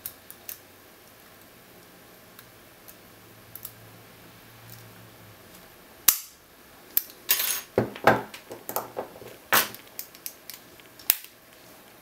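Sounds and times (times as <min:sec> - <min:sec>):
padlock knocking on wooden table: 0:07.8 - 0:09.1.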